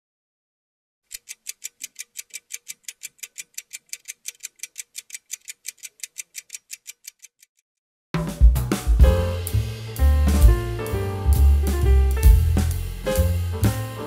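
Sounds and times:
clock ticking: 0:01.1 - 0:07.6.

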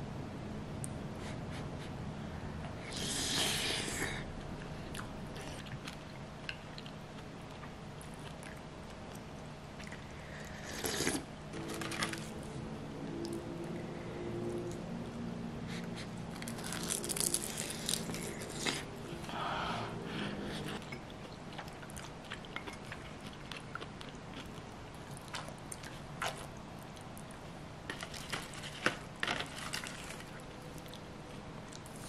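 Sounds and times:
chewing: 0:04.9 - 0:12.3, 0:20.5 - 0:31.1.

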